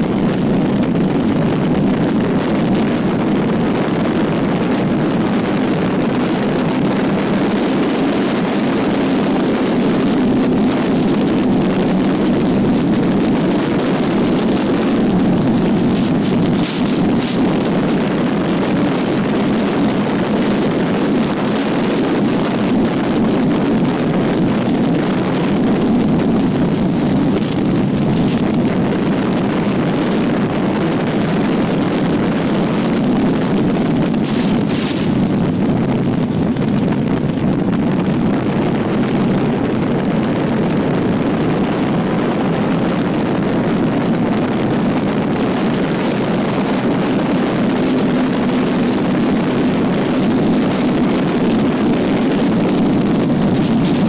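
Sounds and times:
motorcycle engine running: 0.0 - 54.0
wind buffeting microphone: 0.0 - 54.0.

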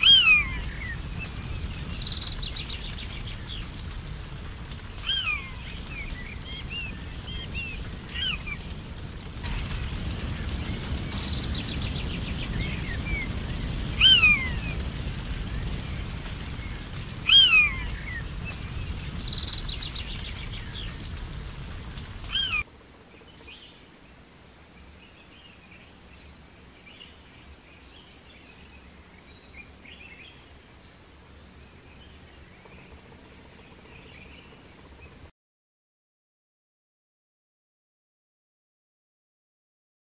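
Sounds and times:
bird trill: 0.0 - 1.0, 5.0 - 8.7, 11.1 - 14.7, 17.2 - 18.2
birds calling: 0.0 - 24.0
steady noisy background: 0.0 - 35.3.

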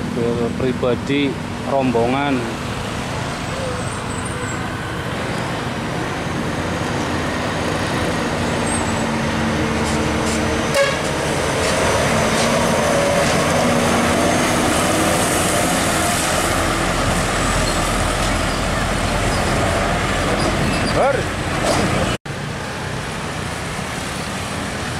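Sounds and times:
road traffic noise: 0.0 - 24.9
short horn toot: 10.7 - 11.1.

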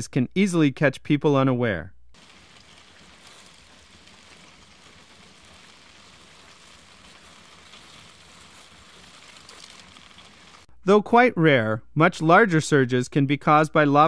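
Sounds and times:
faint outdoor hiss: 2.2 - 11.6.

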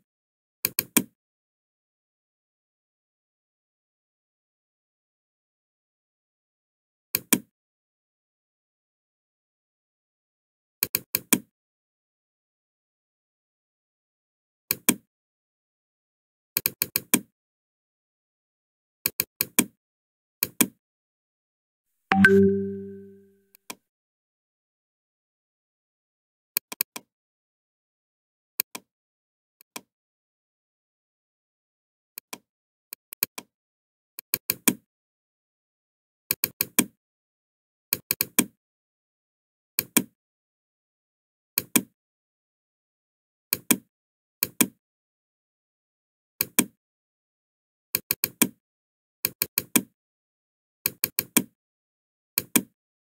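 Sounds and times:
low ringing tone: 22.1 - 23.2.

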